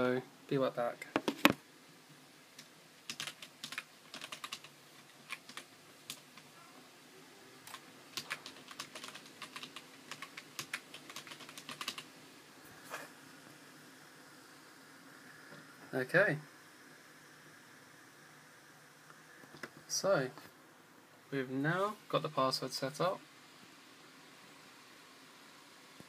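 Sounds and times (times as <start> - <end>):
computer keyboard typing: 3.1 - 6.2, 7.6 - 12.1.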